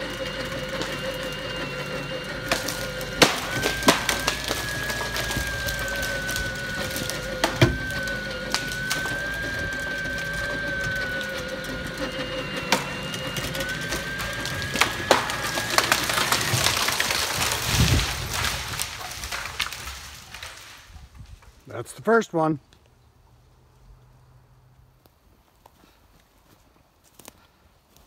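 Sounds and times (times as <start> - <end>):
wood and roots cracking: 0.0 - 22.0
steady whine: 0.0 - 22.1.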